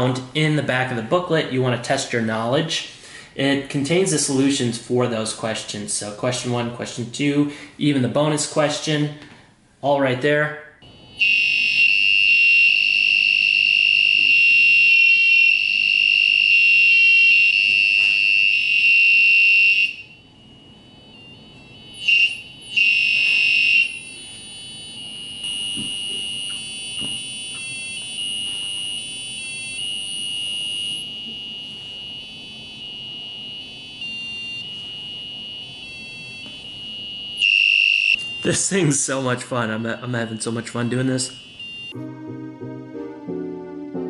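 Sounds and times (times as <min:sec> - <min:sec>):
buzzing electronic tone: 0:11.1 - 0:38.6.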